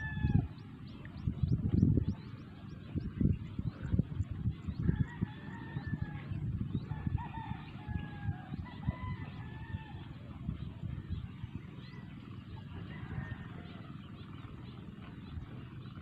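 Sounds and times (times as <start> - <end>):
roosters crowing: 0.0 - 0.6, 4.7 - 10.2, 12.7 - 14.3
wind buffeting microphone: 0.0 - 16.0.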